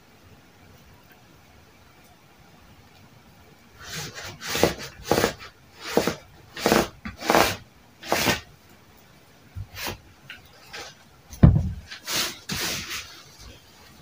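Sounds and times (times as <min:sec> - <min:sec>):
chalk rasping on fabric: 0:03.8 - 0:08.5, 0:11.9 - 0:13.6.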